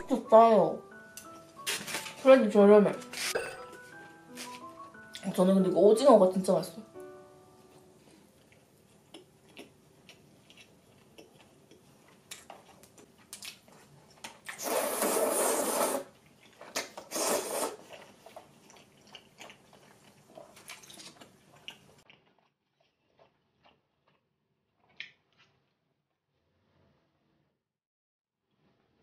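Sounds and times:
soft chewing: 0:07.0 - 0:14.6, 0:16.1 - 0:17.1, 0:17.8 - 0:25.9
slurping noodles: 0:14.4 - 0:24.0.

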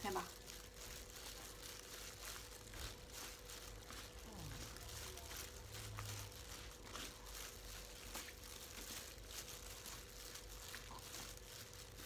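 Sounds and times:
plastic gloves and leaves rustling: 0:00.0 - 0:12.0.

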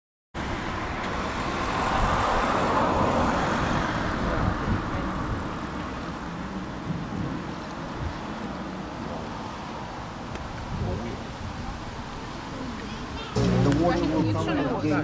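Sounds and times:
vehicle passing: 0:00.4 - 0:06.1, 0:13.3 - 0:15.0
road traffic noise: 0:00.4 - 0:15.0.

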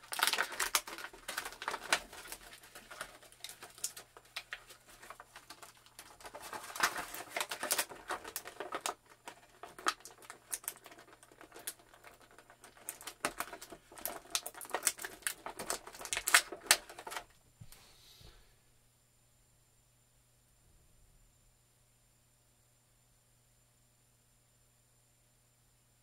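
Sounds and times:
plastic packaging crinkling: 0:00.0 - 0:17.4.

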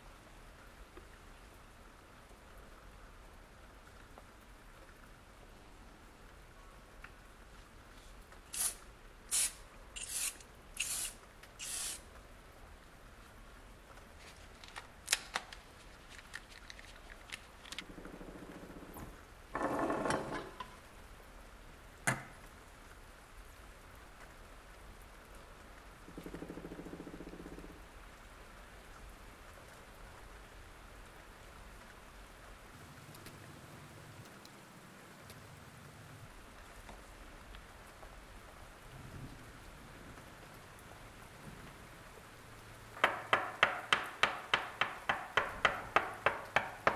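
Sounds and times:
aerosol spray hissing squirts: 0:08.5 - 0:12.0
handling rustle: 0:14.0 - 0:17.9.

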